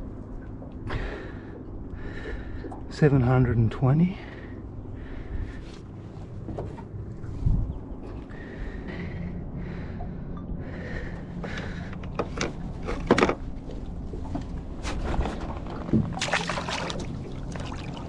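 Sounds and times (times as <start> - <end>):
knocks and clatter in metal boat: 6.4 - 7.0, 11.5 - 16.4.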